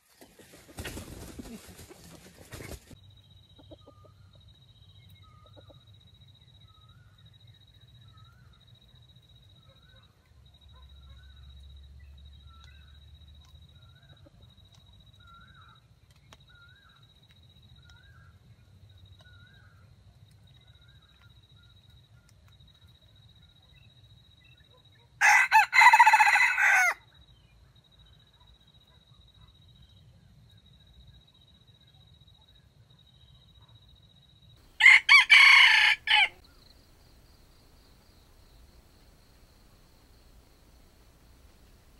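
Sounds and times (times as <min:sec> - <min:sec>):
rooster crowing: 0:25.2 - 0:27.0, 0:34.7 - 0:36.4.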